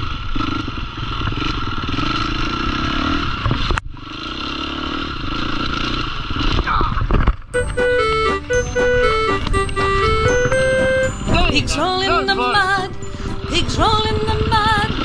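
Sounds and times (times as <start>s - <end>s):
dirt bike engine revving: 0.0s - 6.8s.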